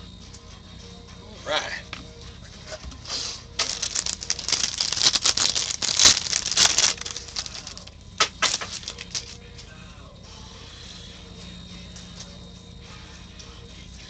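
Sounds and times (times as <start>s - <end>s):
foil pack tearing and crinkling: 3.1s - 9.4s.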